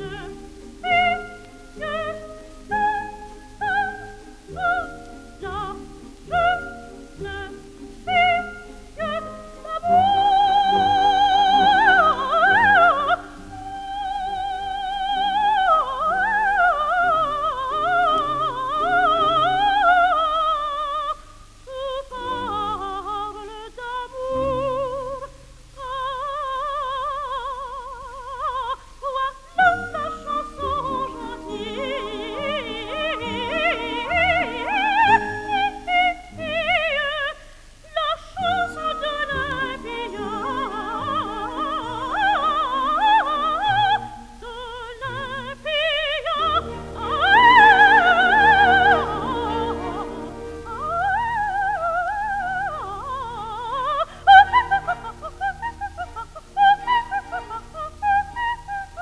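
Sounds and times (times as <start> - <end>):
orchestra accompaniment: 0.0 - 13.9, 29.6 - 36.8, 38.5 - 44.2, 45.2 - 51.7
soprano singing opera: 0.0 - 59.0.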